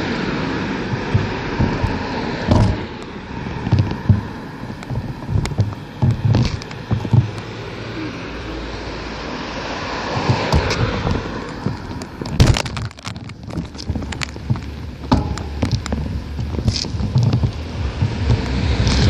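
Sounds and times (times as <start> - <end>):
wind rushing over microphone: 0.0 - 19.0
bicycle thumps and rattles: 0.8 - 7.5, 10.1 - 19.0.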